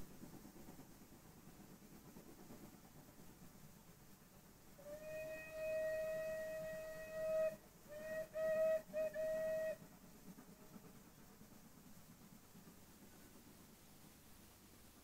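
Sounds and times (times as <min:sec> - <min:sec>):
steam locomotive whistle: 0:04.8 - 0:10.0.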